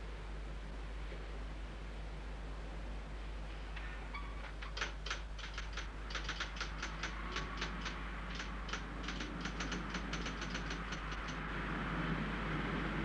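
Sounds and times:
typewriter keystrokes: 4.6 - 11.4.

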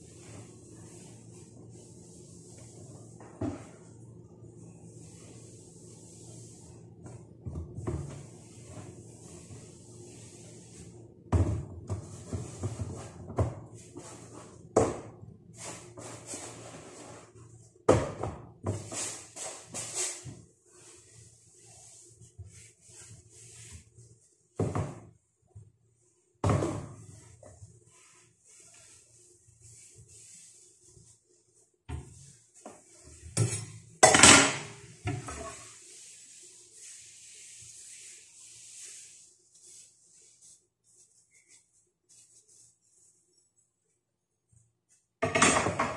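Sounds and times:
knocks and clunks on countertop: 45.2 - 45.9.

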